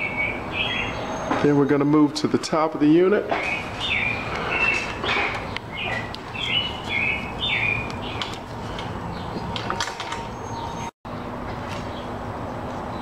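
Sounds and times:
bird chirping: 0.0 - 1.8, 3.3 - 10.9.

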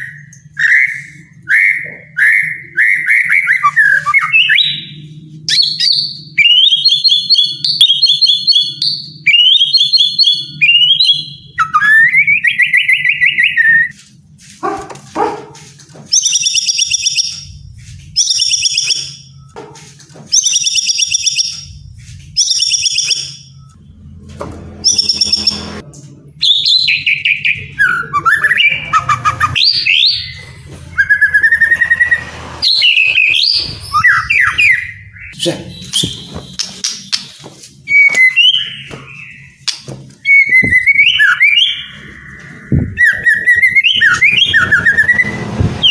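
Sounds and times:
bird singing whistled phrases: 40.2 - 42.1, 42.7 - 45.9.

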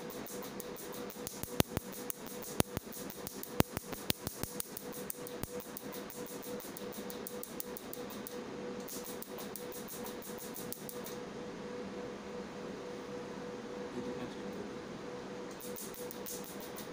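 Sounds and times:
machine hum: 0.0 - 16.9
laser snapping pulses: 15.5 - 16.9.

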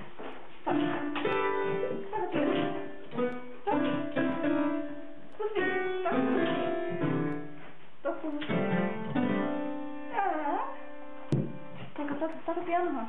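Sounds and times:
piano notes struck by dog: 0.6 - 7.6, 8.4 - 11.8.

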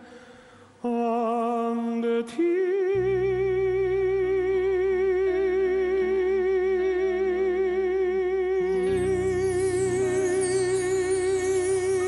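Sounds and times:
man singing long note: 0.8 - 12.0
orchestral accompaniment: 8.8 - 12.0.

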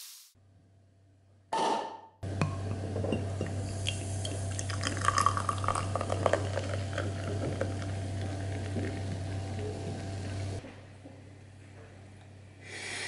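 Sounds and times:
steady low hum: 2.2 - 12.8
beer pouring into a glass: 2.8 - 10.0.

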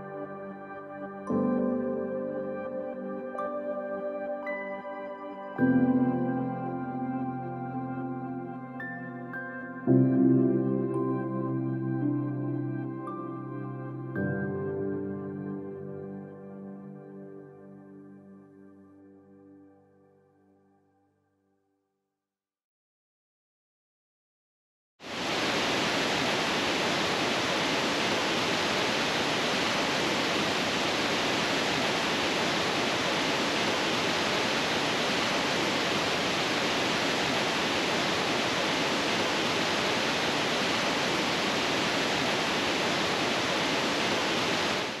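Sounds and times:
stream rushing over cascades: 25.1 - 45.0.

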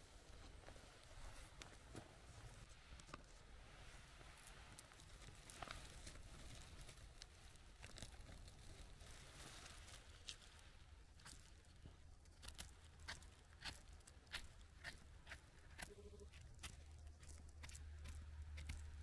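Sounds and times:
faint rustling in moss: 0.0 - 13.4.

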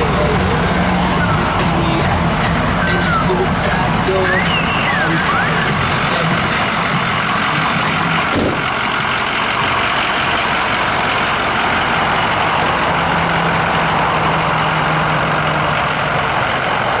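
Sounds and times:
truck engine idling: 0.0 - 17.0.

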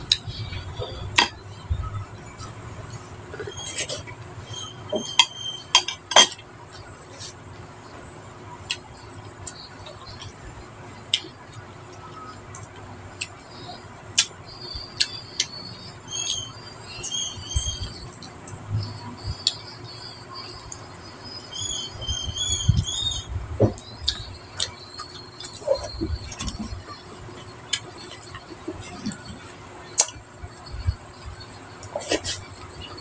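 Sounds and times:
eating sounds: 23.7 - 33.0.

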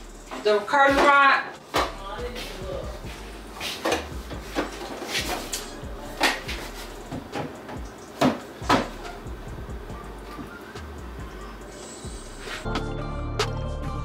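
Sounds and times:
drawer unit knocking on cabinet: 7.1 - 9.1.

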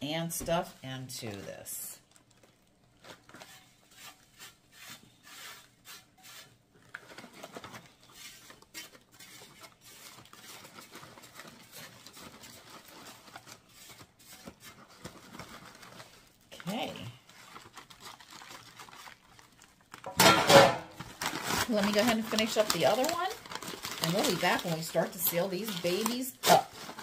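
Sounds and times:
rustle into foil bag: 3.0 - 27.0
crumbs pattering off metal tray: 20.0 - 27.0.

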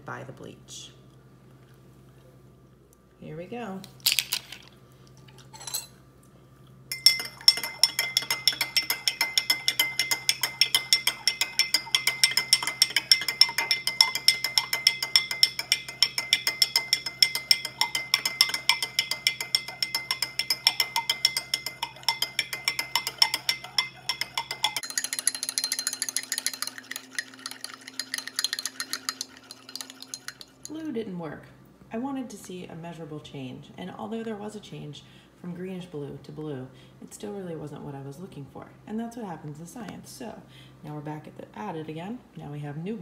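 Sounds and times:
faint steady hum: 0.0 - 43.0
metal spoon clinking in a glass: 5.6 - 6.0, 6.9 - 30.8.

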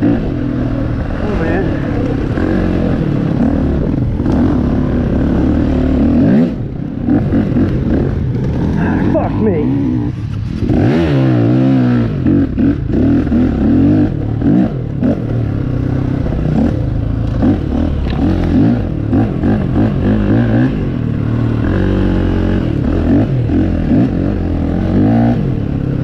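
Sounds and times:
dirt bike engine revving: 0.0 - 26.0
engine clatter: 0.0 - 26.0.

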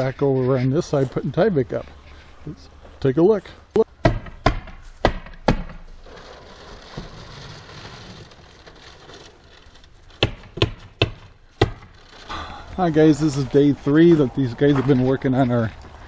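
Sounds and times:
hammer pounding on wall: 4.0 - 5.8, 10.2 - 11.9.

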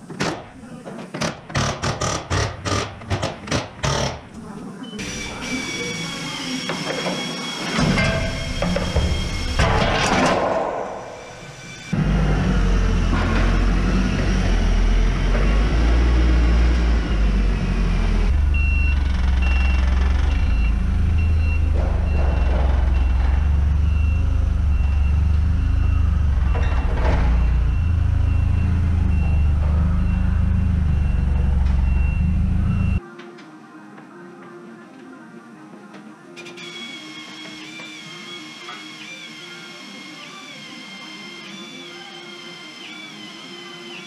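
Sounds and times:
reversing alarm beeping: 4.8 - 9.6, 17.0 - 33.0
heavy vehicle engine rumbling: 12.0 - 33.0.

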